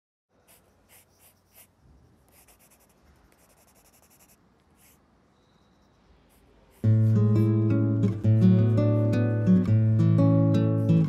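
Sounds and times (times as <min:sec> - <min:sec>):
pencil scratching on paper: 0:00.4 - 0:05.1, 0:05.8 - 0:07.5.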